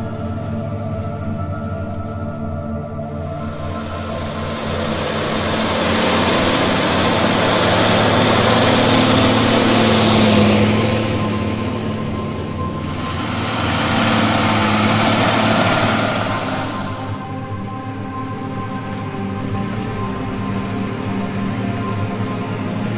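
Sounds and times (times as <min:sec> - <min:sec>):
tractor diesel engine drone: 0:00.0 - 0:22.9
rushing noise: 0:03.3 - 0:17.7.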